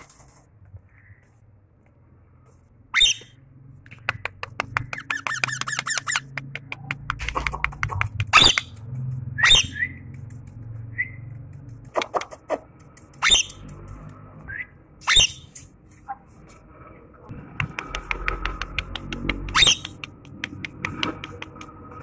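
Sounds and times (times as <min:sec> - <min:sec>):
parakeet screeches: 0:02.9 - 0:03.3
parakeet clicking chatter: 0:04.0 - 0:10.6, 0:11.5 - 0:14.0, 0:17.6 - 0:21.9.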